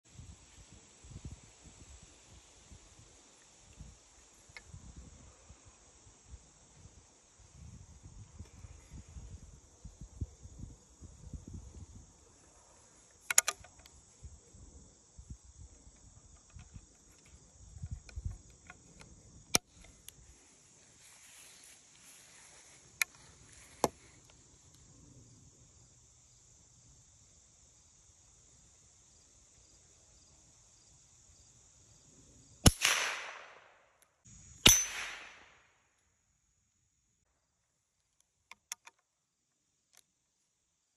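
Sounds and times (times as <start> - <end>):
crickets and insects trilling: 0.1 - 32.7, 34.2 - 35.5
rifle handling clicks: 13.2 - 14.0
rifle shots: 32.7 - 33.8, 34.6 - 35.6.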